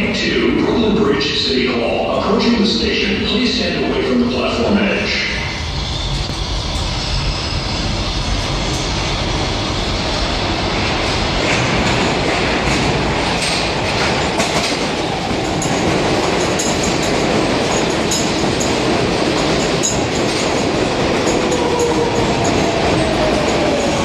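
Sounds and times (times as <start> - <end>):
subway train rushing: 0.0 - 24.0
train braking whine: 2.6 - 10.7
wheels clacking over rails: 10.4 - 24.0.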